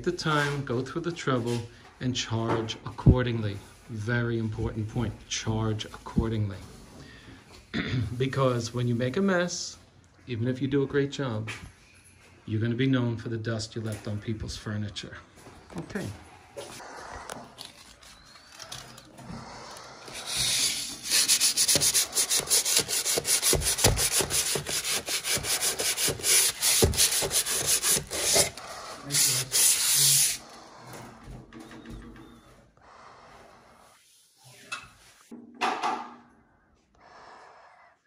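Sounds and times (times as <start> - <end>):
hand sanding scraping strokes: 20.0 - 30.5.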